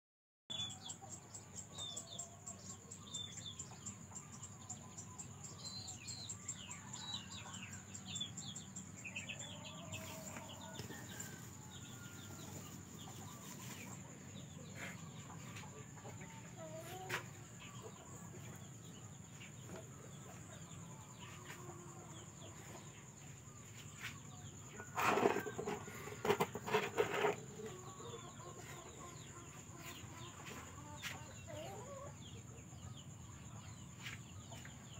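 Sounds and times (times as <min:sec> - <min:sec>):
chickens clucking and squawking: 0:08.8 - 0:34.9.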